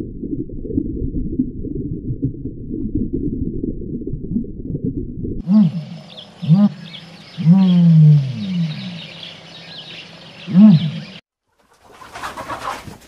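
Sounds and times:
animal calling low: 5.4s - 11.2s.

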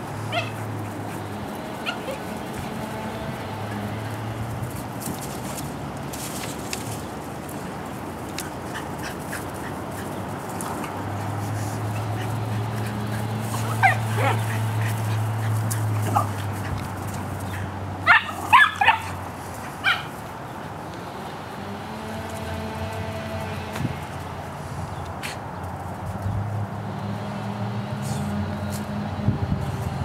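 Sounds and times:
dogs yipping and barking: 0.0s - 4.3s, 8.3s - 20.8s.

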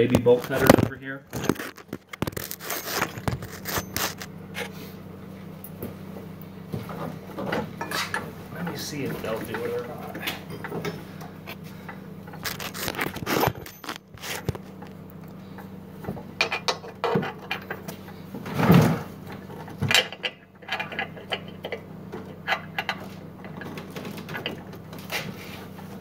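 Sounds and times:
steady low hum: 0.0s - 26.0s
chain clinking and scraping: 1.3s - 4.7s, 12.3s - 14.8s.

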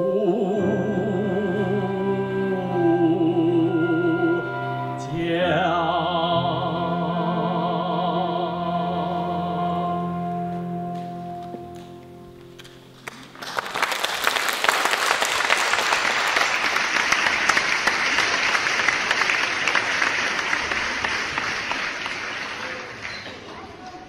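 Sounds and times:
audience applauding: 12.9s - 24.0s.

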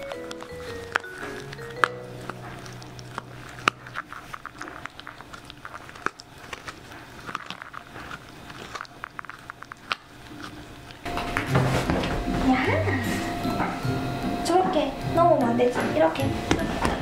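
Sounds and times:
teeth clicking: 0.0s - 11.1s
small dog chewing: 0.0s - 11.4s.

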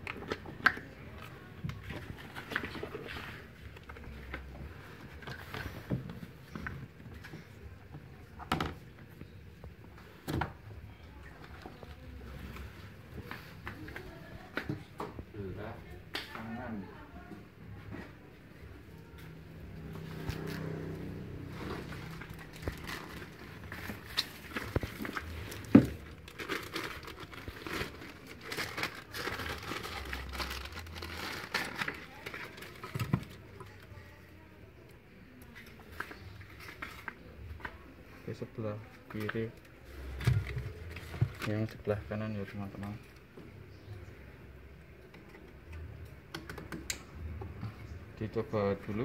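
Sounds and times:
plastic wrapping crinkling: 21.6s - 34.0s.

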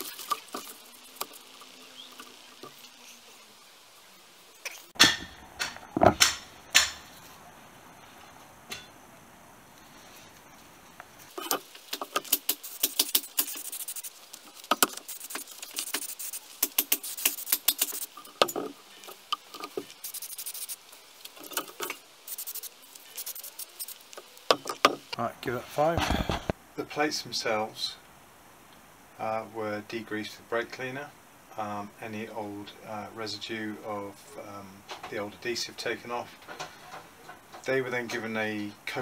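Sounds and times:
aerosol spray hissing: 11.7s - 24.6s.

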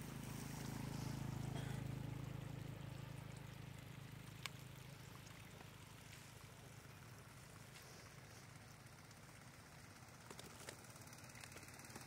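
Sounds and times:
water trickling over mud: 0.0s - 12.0s.

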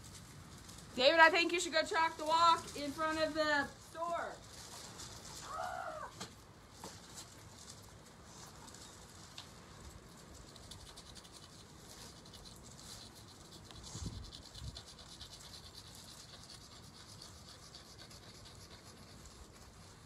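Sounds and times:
chalk scratching on concrete: 10.2s - 20.0s.

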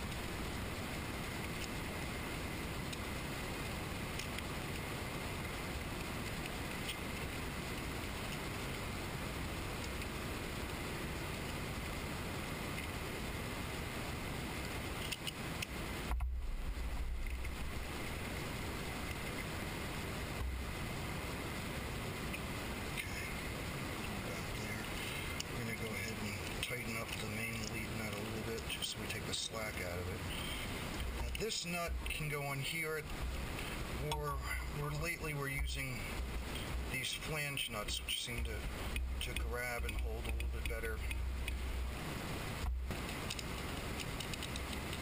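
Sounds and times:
steady background hiss: 0.0s - 45.0s
dull low bump: 16.1s - 18.3s, 42.6s - 43.1s.

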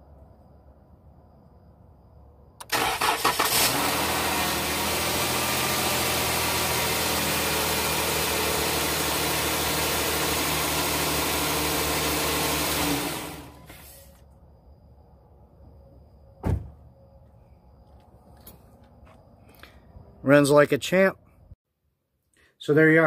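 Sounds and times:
car engine cranking and idling: 2.6s - 13.7s.

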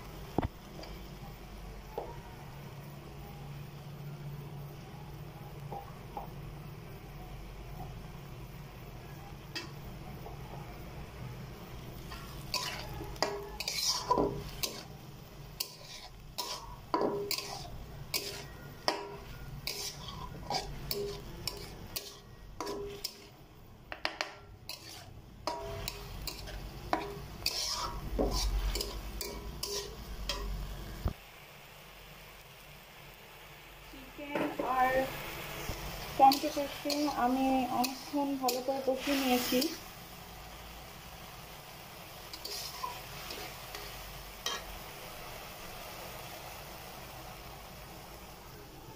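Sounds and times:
food sizzling in oil: 0.0s - 48.9s
spatula scraping a metal wok: 11.8s - 23.4s, 24.4s - 30.7s, 35.6s - 39.9s, 42.2s - 44.8s.

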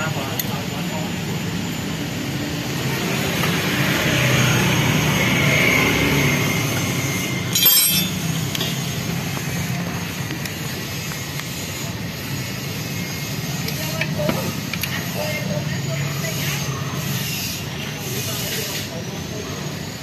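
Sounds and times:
metal tool clinking on engine: 7.5s - 8.7s.

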